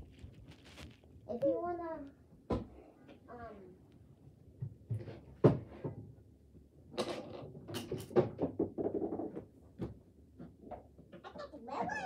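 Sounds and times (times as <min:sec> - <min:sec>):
small objects knocking and rustling: 0:00.0 - 0:01.3.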